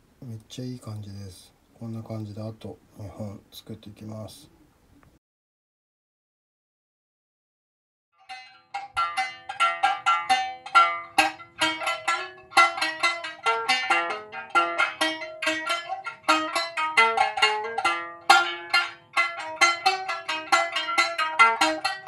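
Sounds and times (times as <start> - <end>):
plucked lute melody: 8.2 - 22.0.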